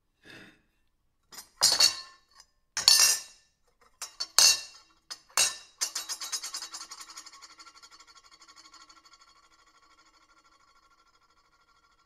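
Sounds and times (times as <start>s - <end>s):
cutlery clinking against plate: 1.4s - 2.2s, 2.8s - 3.3s, 4.0s - 6.7s.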